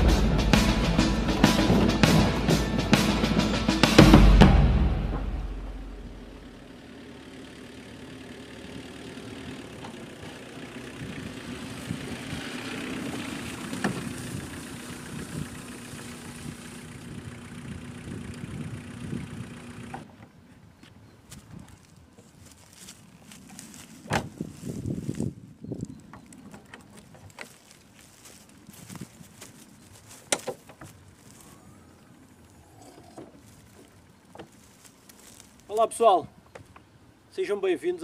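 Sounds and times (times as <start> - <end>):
music: 0.0 - 6.0
car engine running: 0.0 - 20.1.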